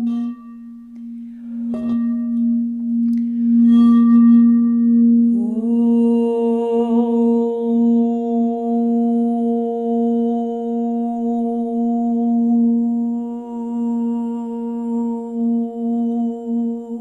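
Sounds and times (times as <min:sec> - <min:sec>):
crystal singing bowl ringing: 0:00.0 - 0:08.4
woman humming: 0:01.9 - 0:17.0.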